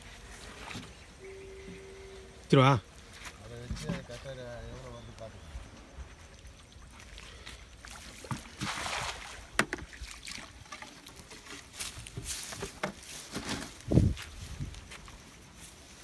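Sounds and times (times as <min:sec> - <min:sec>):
cast net splashing on water: 0:07.8 - 0:11.5.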